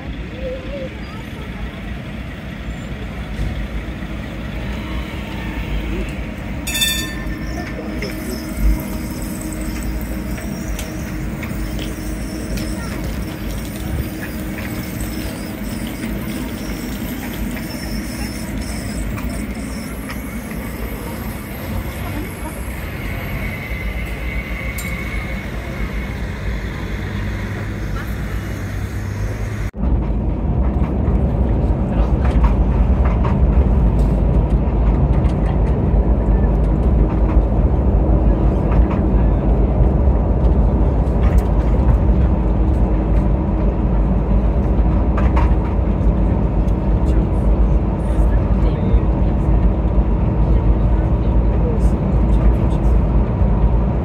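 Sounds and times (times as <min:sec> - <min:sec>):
street traffic: 0:00.0 - 0:54.0
tram rumbling past: 0:00.0 - 0:54.0
thin high tone: 0:06.6 - 0:07.7
brief high-pitched ring: 0:06.7 - 0:07.4.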